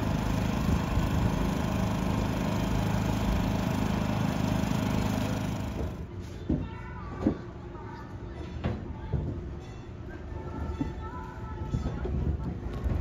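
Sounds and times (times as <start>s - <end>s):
generator engine humming: 0.0s - 6.2s.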